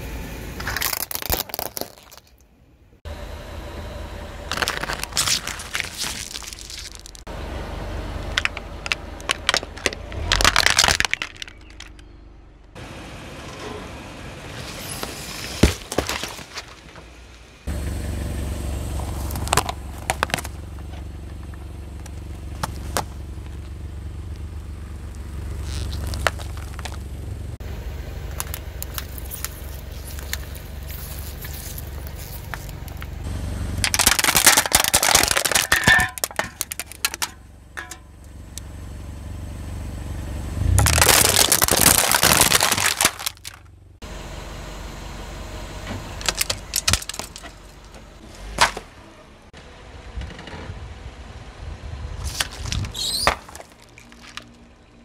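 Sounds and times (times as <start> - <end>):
car engine rumbling: 0.0 - 55.0
objects crunching under car tyre: 0.6 - 2.6, 4.4 - 7.3, 8.2 - 12.2, 14.5 - 17.7, 18.9 - 38.7, 40.6 - 43.8, 46.0 - 49.0, 52.2 - 55.0.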